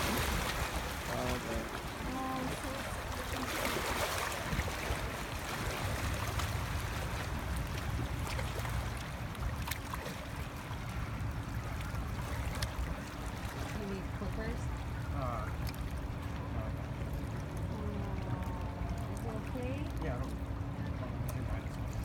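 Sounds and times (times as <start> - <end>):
river water rushing: 0.0 - 15.4.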